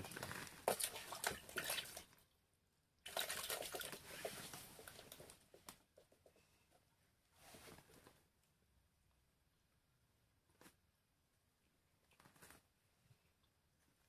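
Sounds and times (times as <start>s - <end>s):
rustling with small clicks: 12.0s - 12.8s.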